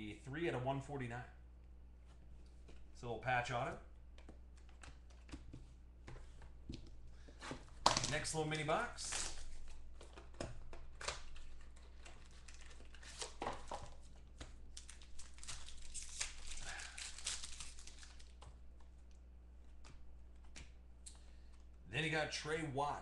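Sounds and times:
foil wrappers crinkling and tearing: 7.8 - 18.5.

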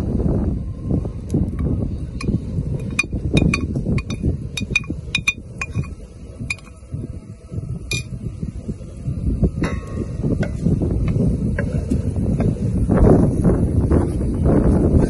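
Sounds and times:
low steady rumble: 0.0 - 15.0
metal clinking on steel pan: 2.8 - 6.8.

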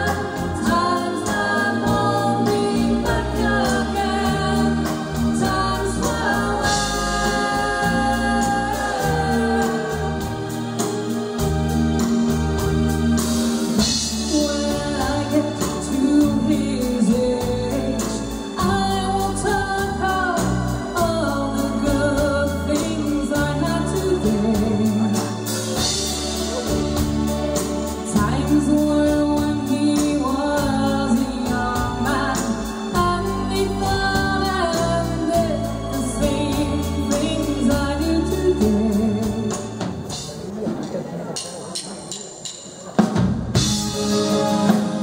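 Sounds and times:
woman singing: 0.0 - 11.0, 13.8 - 26.8, 27.9 - 39.9
live pop band playing: 0.0 - 45.0.

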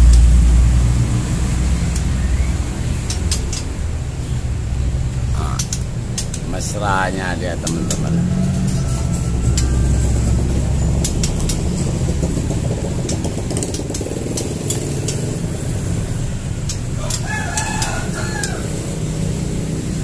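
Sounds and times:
low rumble: 0.0 - 17.0
rooster crowing: 7.5 - 10.9, 16.9 - 19.1.

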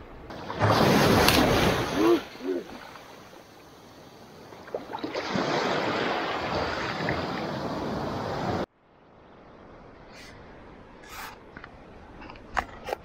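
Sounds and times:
small waves washing on sand: 0.3 - 8.7.

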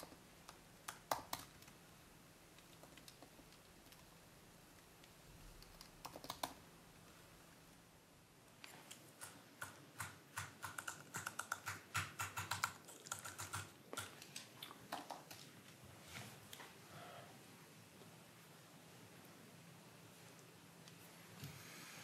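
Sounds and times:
typing on laptop keyboard: 0.0 - 1.8, 2.6 - 4.1, 5.5 - 6.6, 9.2 - 15.5.

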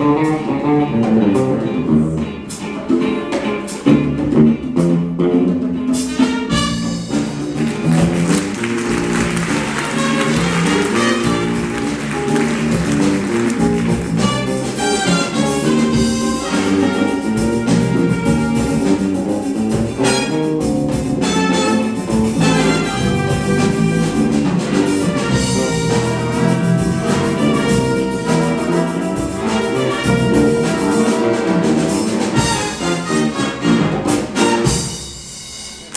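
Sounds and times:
electric bass: 0.0 - 2.5, 3.9 - 32.5
guitars: 0.0 - 34.9
conga drums: 0.0 - 35.9
drum kit: 0.0 - 35.9
horn section chord hits: 6.2 - 35.1.

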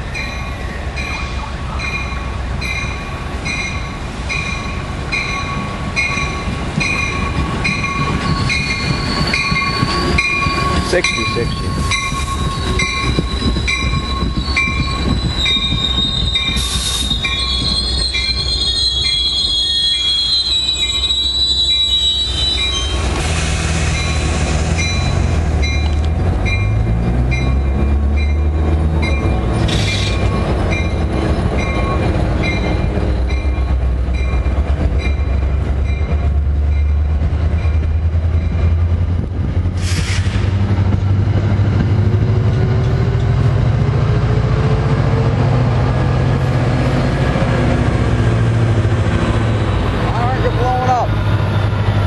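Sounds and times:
train rumble: 0.0 - 52.0
train wheels squealing: 0.1 - 25.9, 26.5 - 36.1
steady bell ringing: 1.8 - 15.7.

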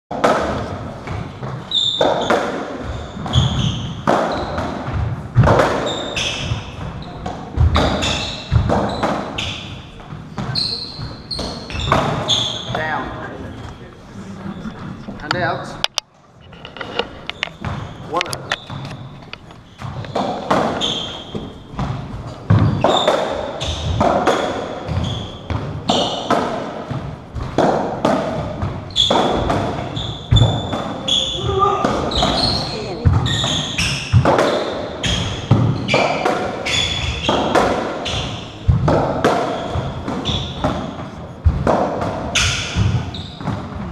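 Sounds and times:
ball hitting racquets and walls: 0.1 - 13.8, 14.4 - 43.9
shoes squeaking on wooden floor: 0.3 - 43.9.

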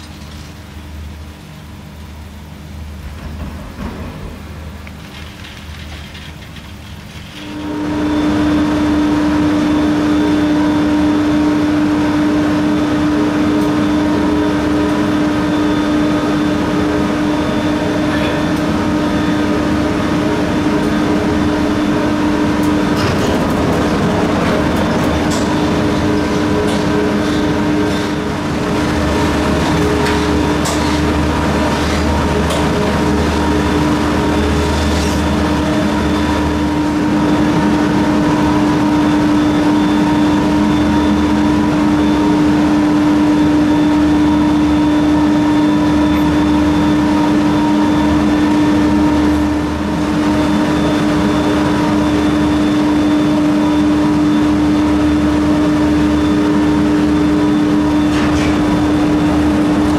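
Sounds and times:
gondola machinery humming: 0.0 - 59.9
clicks and clanks of cabins: 3.0 - 7.6, 22.3 - 36.8, 57.8 - 59.9.

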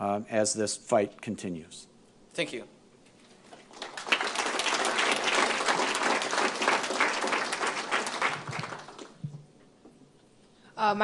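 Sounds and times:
audience applauding: 3.6 - 9.2.

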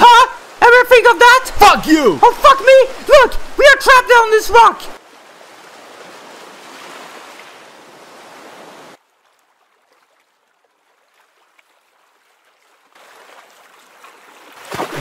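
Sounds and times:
ocean waves washing: 0.0 - 9.0, 12.9 - 15.0.

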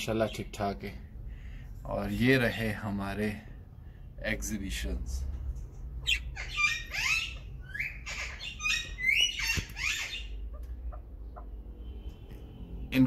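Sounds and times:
harsh parrot squawks: 6.0 - 11.4.

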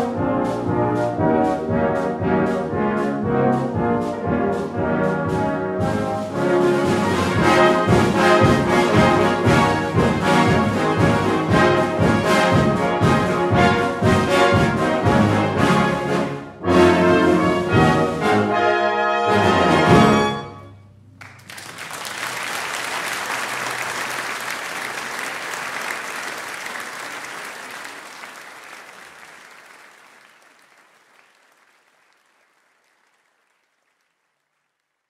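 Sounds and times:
brass band chord: 0.0 - 20.9
audience applause: 21.2 - 35.0.

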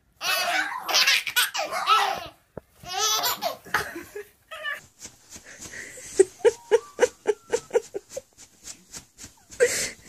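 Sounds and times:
baby laughing: 0.2 - 4.8.

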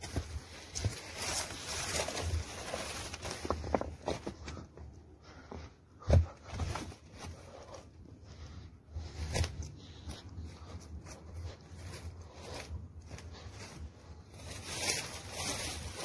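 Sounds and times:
footsteps crunching through brush: 0.0 - 4.7, 8.9 - 16.0.

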